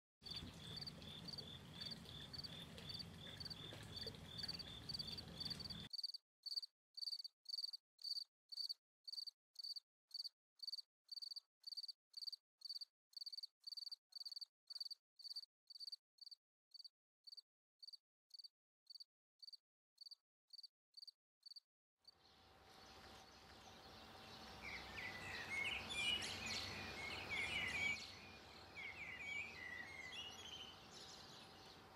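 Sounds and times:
crickets chirping: 0.3 - 21.6.

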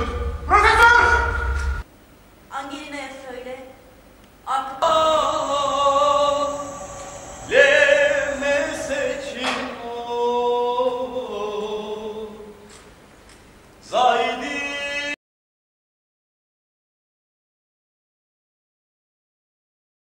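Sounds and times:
slow choral music: 4.5 - 13.0, 13.8 - 15.2.

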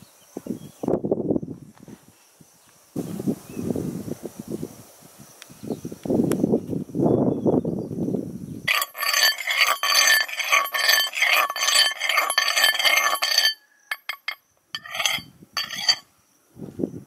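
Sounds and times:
knife scraping on rock: 8.7 - 16.0.

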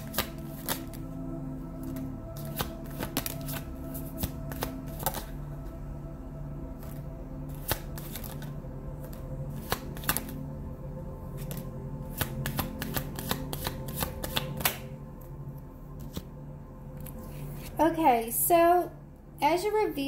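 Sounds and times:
cards being shuffled: 0.0 - 1.0, 1.8 - 5.3, 6.8 - 10.4, 11.4 - 14.9, 16.0 - 16.3
soft background music: 0.0 - 20.0.

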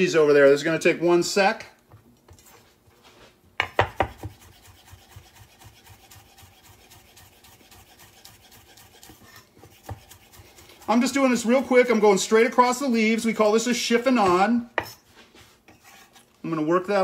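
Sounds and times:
hard knocks on cutting board: 3.6 - 4.3
knife chopping on wooden board: 3.6 - 10.6.

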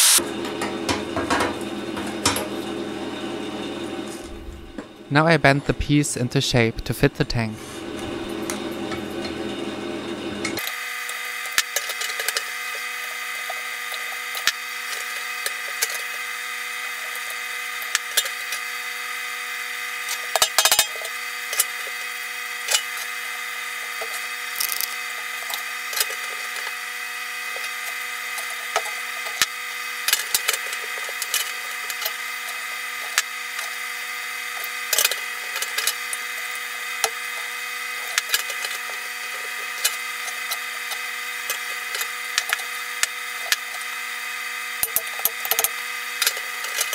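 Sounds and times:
steady background hum: 0.2 - 10.7, 23.6 - 46.9.

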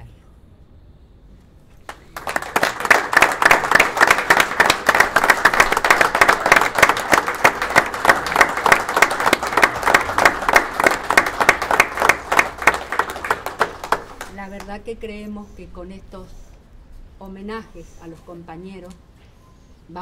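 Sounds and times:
audience applauding: 1.8 - 14.8.

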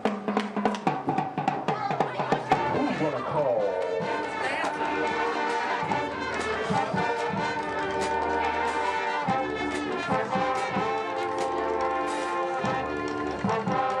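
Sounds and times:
brass sustained chords: 2.6 - 14.0.

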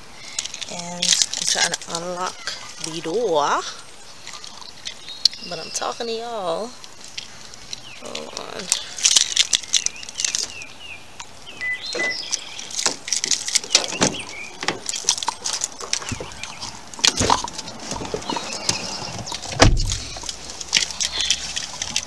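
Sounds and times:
birds chirping: 0.0 - 22.0
keys clicking and rustling: 6.9 - 10.6, 11.8 - 22.0
car door unlocked and opened: 11.6 - 16.4, 17.0 - 21.3.

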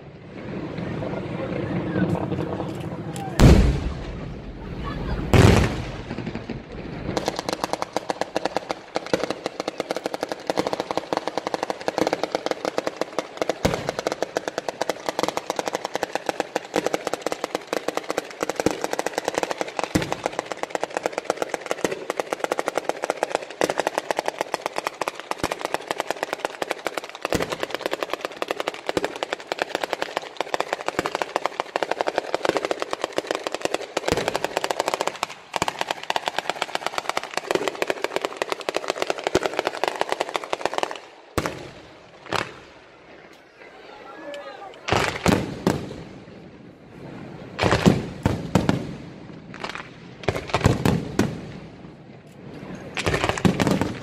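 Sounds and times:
firecrackers going off rapidly: 0.0 - 43.2, 44.8 - 54.0
heavy firework bang: 1.7 - 7.4.

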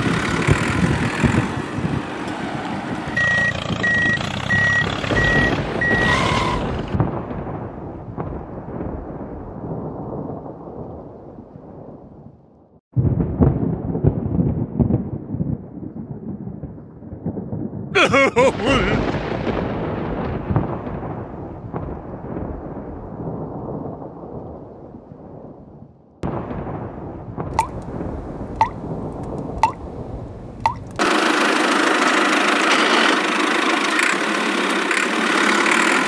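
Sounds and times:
rolling thunder: 5.1 - 12.4, 13.0 - 17.9, 18.9 - 31.0.

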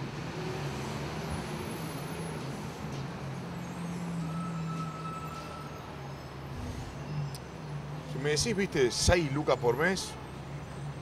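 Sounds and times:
heavy vehicle engine drone: 0.0 - 8.2
city street traffic: 0.0 - 11.0.

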